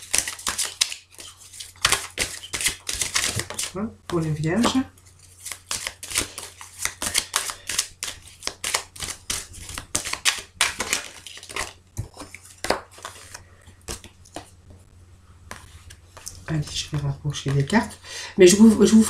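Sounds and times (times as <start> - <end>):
cards being shuffled: 0.0 - 14.6.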